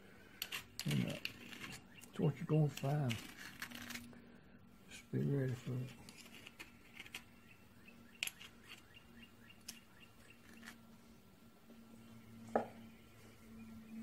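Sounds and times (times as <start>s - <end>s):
faint hum: 0.0s - 14.0s
brush scraping metal: 0.3s - 4.1s, 4.9s - 7.5s.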